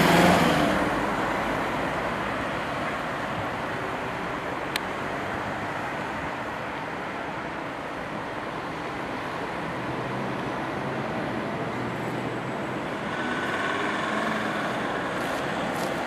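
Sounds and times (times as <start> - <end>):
road traffic noise: 0.0 - 16.0
vehicle passing: 10.1 - 16.0.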